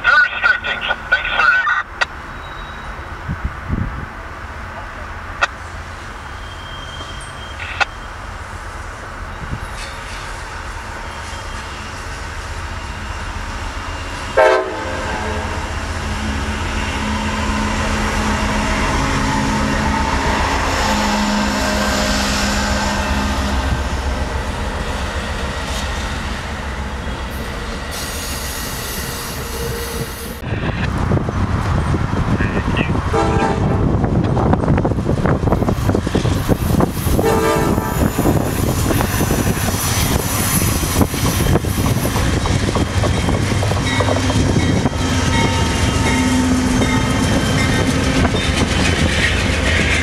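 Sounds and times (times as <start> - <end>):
loud multi-tone horn burst: 14.4 - 15.6, 37.2 - 38.1
train wheels clattering on rails: 34.1 - 50.0.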